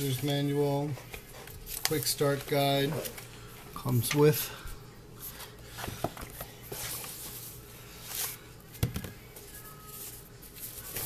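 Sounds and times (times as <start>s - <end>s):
plastic wrap and paper rustling: 0.0s - 4.4s, 9.3s - 11.0s.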